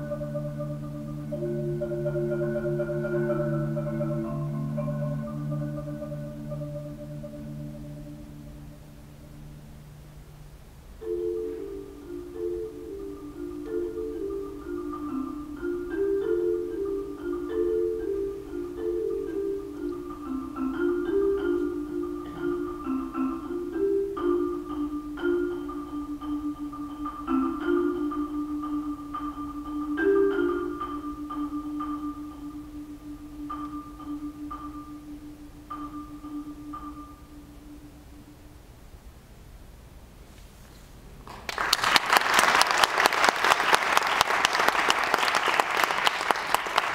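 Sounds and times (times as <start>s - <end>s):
marimba playing: 0.0s - 10.0s, 11.0s - 38.5s.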